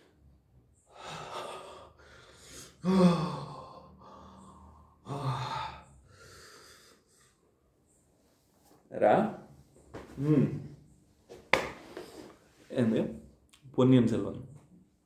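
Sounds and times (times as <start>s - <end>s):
noisy breaths: 0.0s - 8.7s
man sighing and gasping: 0.9s - 6.1s, 10.2s - 10.8s.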